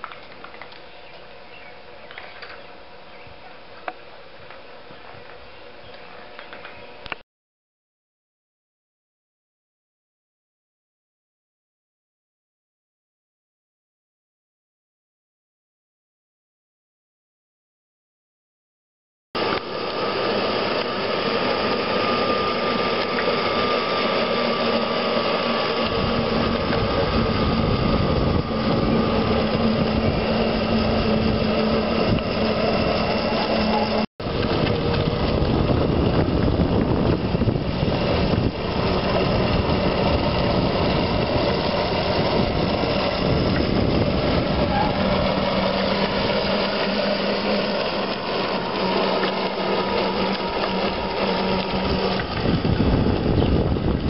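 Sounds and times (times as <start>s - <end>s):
vehicle running hum: 19.5s - 54.0s
road and wind noise: 22.8s - 49.3s, 50.3s - 54.0s.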